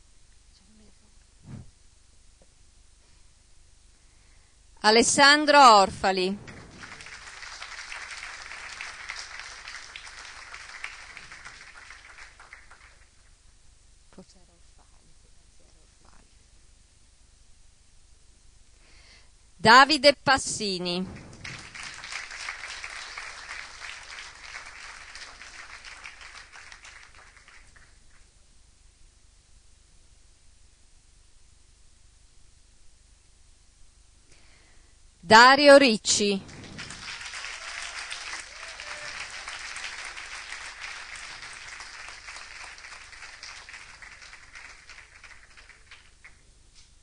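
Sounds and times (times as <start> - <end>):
audience applauding: 6.4 - 13.3, 21.1 - 28.2, 36.4 - 46.4.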